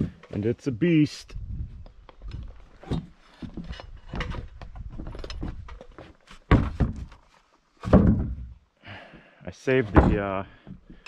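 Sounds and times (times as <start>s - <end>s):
wooden rafter knocking and scraping: 1.7s - 8.7s, 9.7s - 11.0s
heavy thuds: 9.9s - 11.0s.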